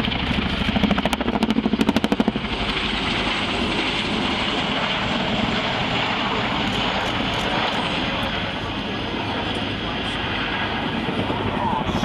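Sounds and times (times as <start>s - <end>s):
helicopter engines rushing: 0.0s - 12.0s
helicopter rotor chop: 0.0s - 12.0s.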